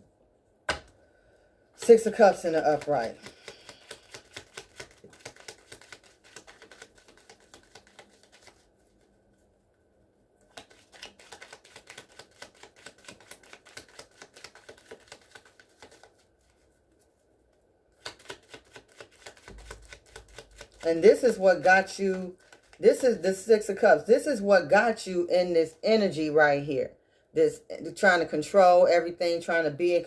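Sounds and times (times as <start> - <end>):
cards shuffled by hand: 1.8 - 9.1, 10.4 - 17.2, 17.9 - 23.4.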